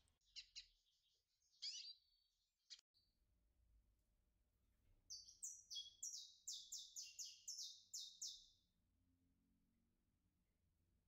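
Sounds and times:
finch chirping: 1.5 - 2.0, 5.1 - 8.5.

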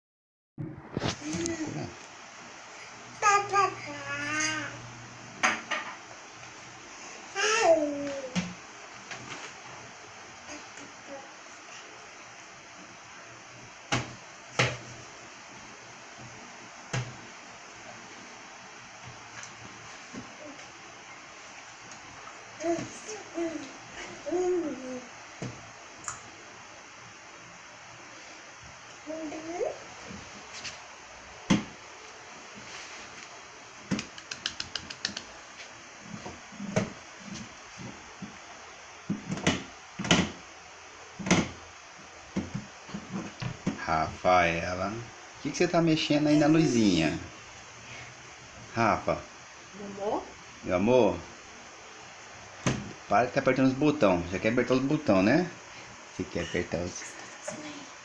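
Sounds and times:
hands slapping wooden panel: 33.9 - 35.3.

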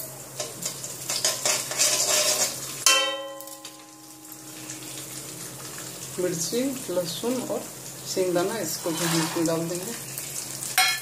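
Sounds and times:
seeds sizzling in hot oil: 0.0 - 11.0
metal spatula scraping: 1.1 - 2.6, 8.7 - 9.8.

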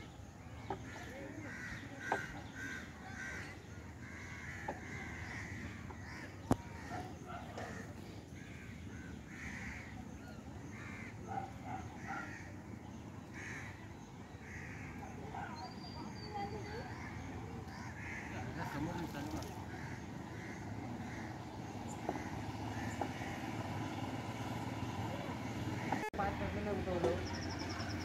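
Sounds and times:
crows cawing: 0.9 - 10.1, 10.7 - 12.6, 13.3 - 15.2, 16.8 - 24.0.

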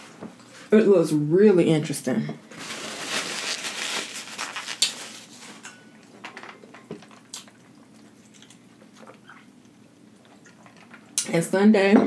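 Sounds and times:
paper towel rustling: 2.5 - 5.6.

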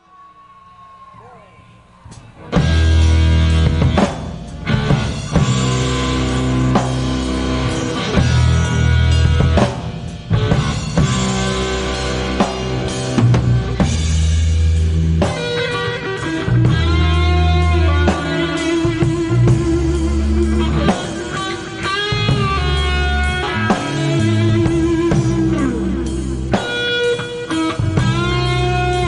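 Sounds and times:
rock guitar melody: 0.0 - 29.0
bass and drum kit: 1.1 - 29.0.

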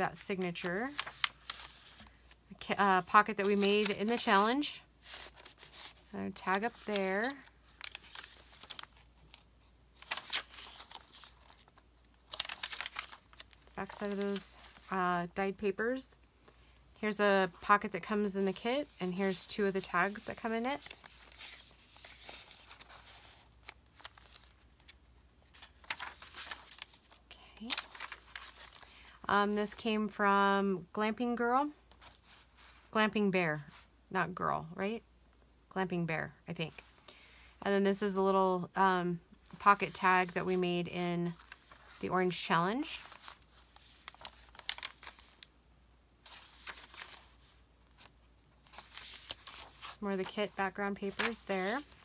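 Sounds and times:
paper pages rustling: 0.4 - 15.0, 17.7 - 29.8, 31.9 - 32.9, 39.4 - 45.5, 46.2 - 52.0.

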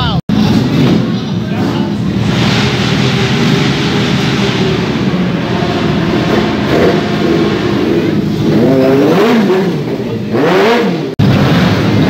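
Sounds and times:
motorcycle engine revving: 0.3 - 12.0.

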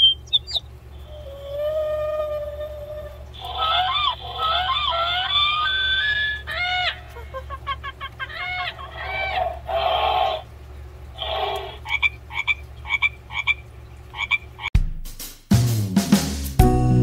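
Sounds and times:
recorded frog croaking: 0.0 - 7.0, 8.4 - 14.7.

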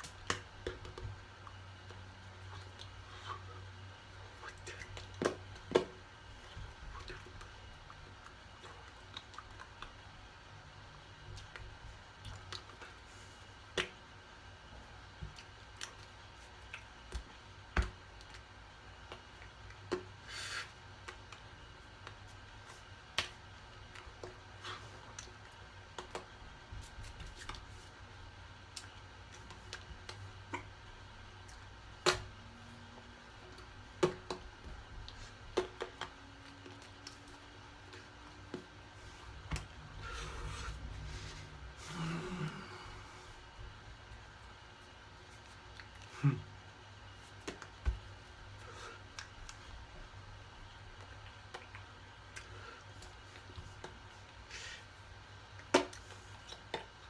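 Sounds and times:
hands tapping and slapping: 0.0 - 1.2, 47.4 - 48.1
low room hum: 0.0 - 57.0.

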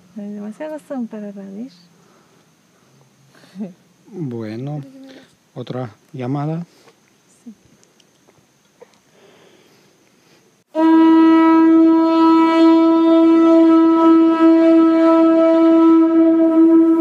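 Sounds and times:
conch shell trumpet note: 10.7 - 17.0.

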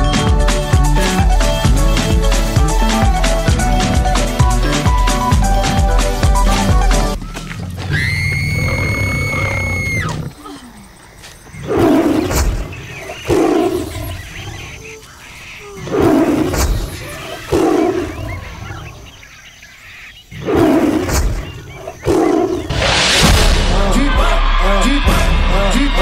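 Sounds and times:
lion roaring: 20.3 - 21.4.

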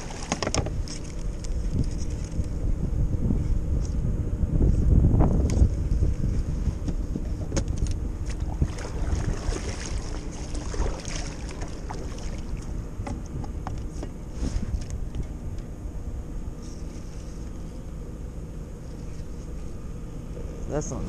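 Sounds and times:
water lapping against hull: 0.0 - 2.2, 5.8 - 15.2
wind rumble on microphone: 0.0 - 17.8.

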